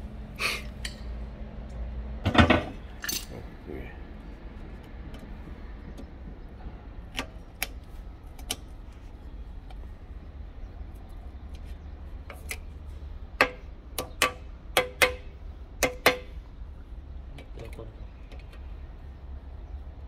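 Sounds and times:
metallic clicks of pliers and ring: 0:03.0 - 0:03.4.

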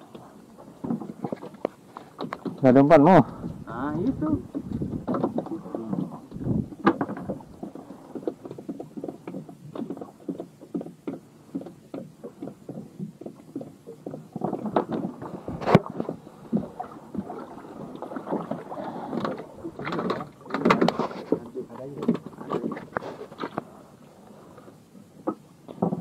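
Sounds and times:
waves slapping boat hull: 0:00.0 - 0:26.0.

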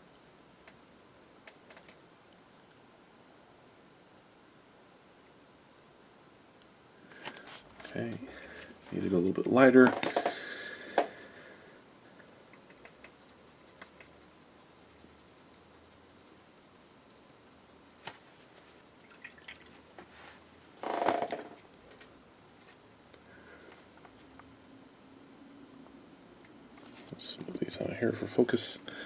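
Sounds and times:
paintbrush dabbing paint: 0:12.8 - 0:18.6
rustling scrape: 0:20.1 - 0:20.5.

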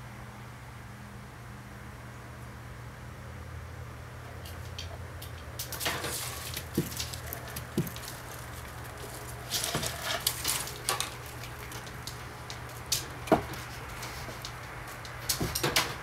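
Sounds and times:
blind slats rattling: 0:05.2 - 0:16.0
kitten claws scratching blind: 0:05.6 - 0:15.7.

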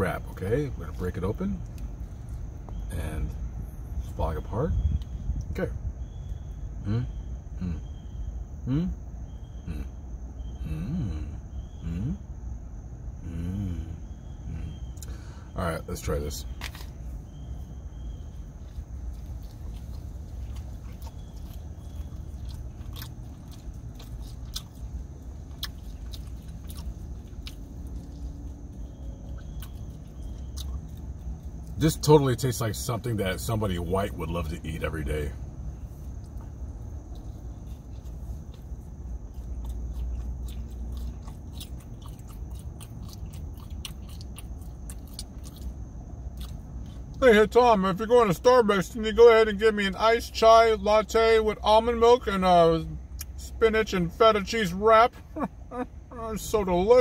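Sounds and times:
steady low rumble: 0:00.0 - 0:57.0
person chewing food: 0:16.6 - 0:31.8, 0:36.0 - 0:47.2
wet mouth clicks and smacks: 0:39.5 - 0:45.8.

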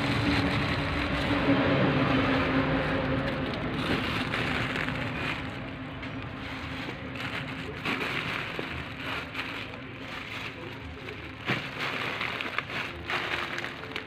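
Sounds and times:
plastic bags crinkling: 0:00.0 - 0:14.0.

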